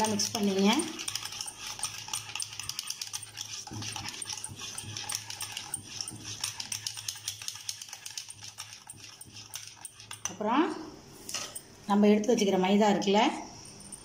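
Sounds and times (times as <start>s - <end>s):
whisk beating batter in bowl: 0.0s - 10.6s.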